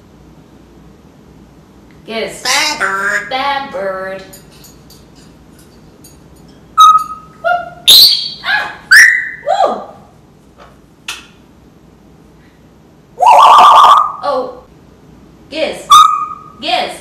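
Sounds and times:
parrot whistles and calls: 6.8 - 9.5, 13.2 - 14.2, 15.9 - 16.6.

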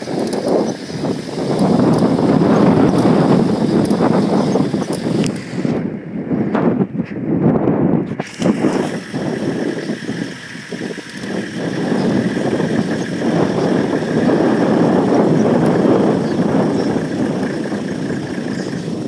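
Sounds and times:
vehicle engine running: 0.0 - 6.6, 8.2 - 19.0.

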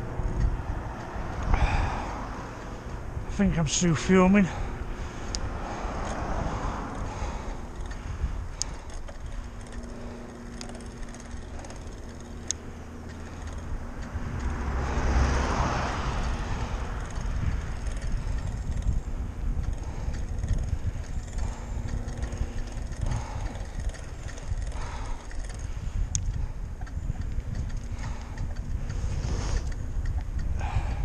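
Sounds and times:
bike rattles: 0.0 - 31.0
car passing: 0.0 - 31.0
wind rumbling on microphone: 0.0 - 31.0.

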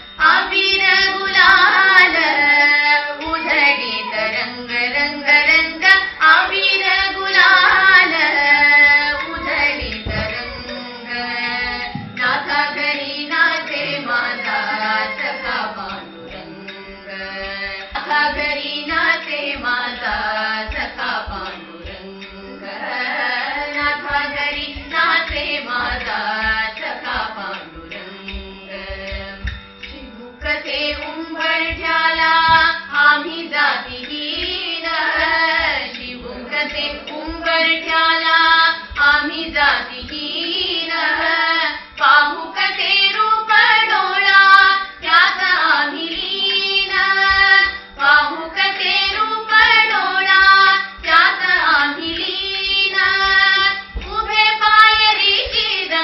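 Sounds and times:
women singing devotional song: 0.0 - 56.0.

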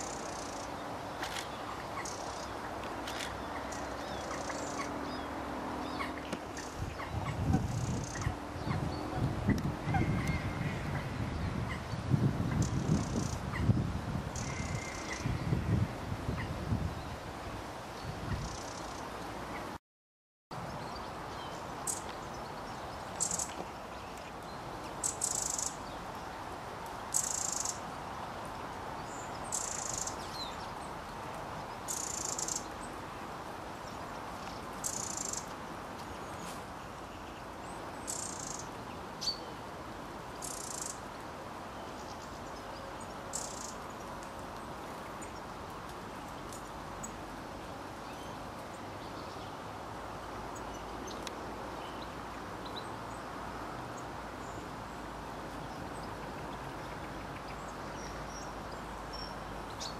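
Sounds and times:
steady background hiss: 0.0 - 19.8, 20.6 - 59.9.

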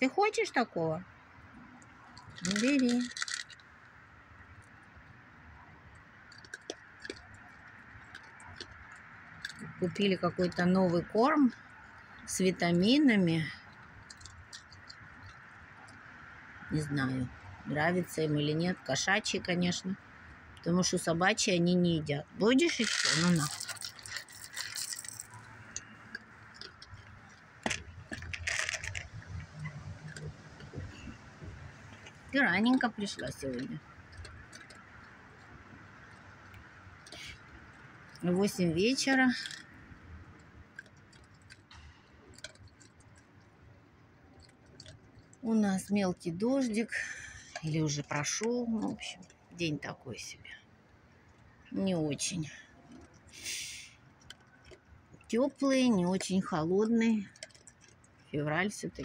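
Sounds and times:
animal eating dry kibble: 1.7 - 16.2, 22.6 - 49.6, 52.7 - 59.0
rattling rustle: 2.1 - 4.0, 22.6 - 38.3.

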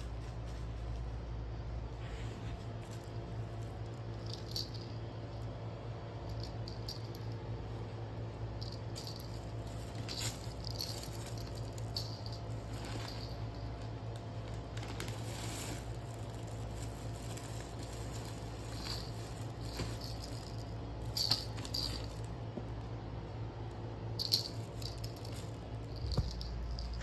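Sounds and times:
steady low hum: 0.0 - 27.0
fabric tunnel rustling and crinkling: 9.2 - 22.5.

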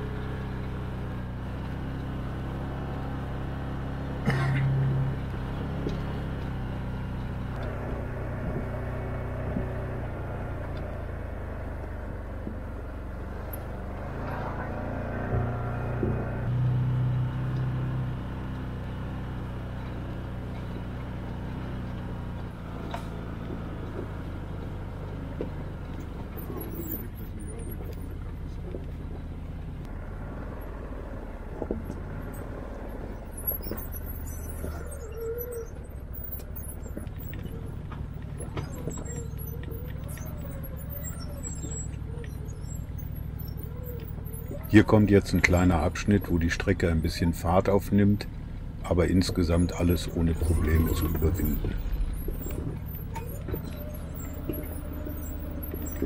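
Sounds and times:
engine running: 0.0 - 56.0.

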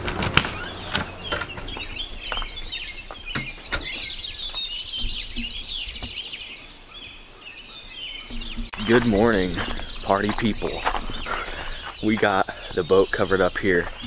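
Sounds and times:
birds chirping: 0.0 - 14.0
footsteps: 8.2 - 14.0.

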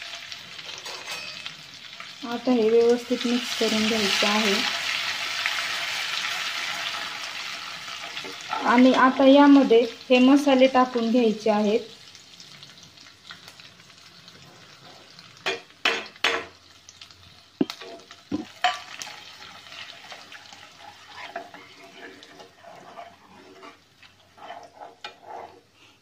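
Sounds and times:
spices sizzling in hot oil: 0.0 - 26.0
metal ladle clinking and scraping pan: 0.6 - 1.5, 20.8 - 25.6.

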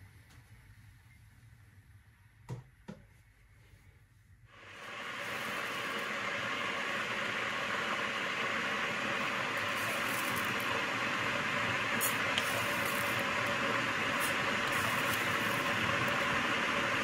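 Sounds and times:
blender hissing whir: 4.5 - 17.0.

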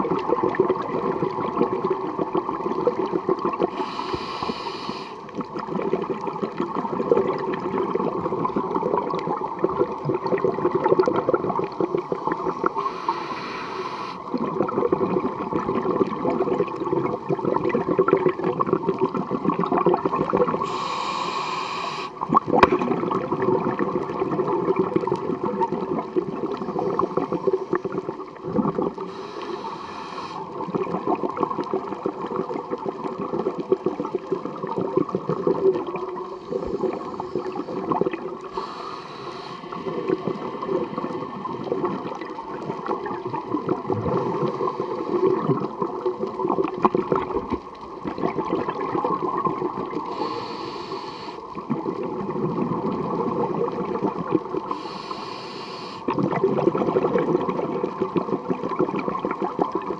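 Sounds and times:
exhaled bubbles gurgling: 0.0 - 59.9
regulator inhalation hiss: 3.7 - 5.3, 12.6 - 14.2, 20.6 - 22.2, 29.1 - 30.6, 38.5 - 39.9, 50.1 - 51.5, 54.7 - 56.1.

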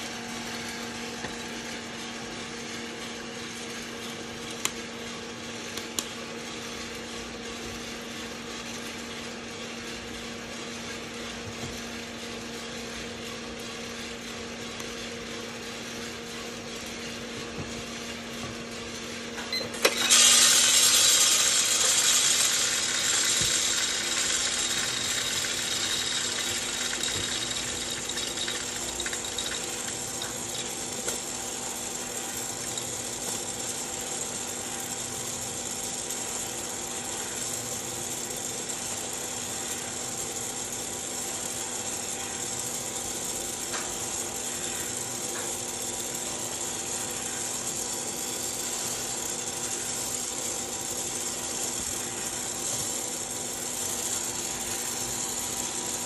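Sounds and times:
motor hum: 17.2 - 36.3
fan hissing: 19.8 - 32.2
light clicks of beans: 20.0 - 33.4.

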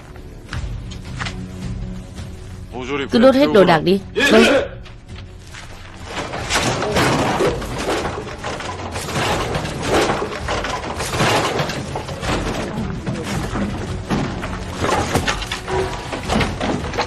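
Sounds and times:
goods crashing and breaking: 5.6 - 17.0.

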